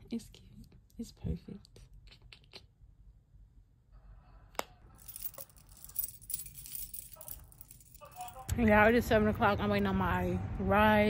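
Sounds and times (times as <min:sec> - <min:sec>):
light clinking and rustling: 0:05.0 - 0:08.5.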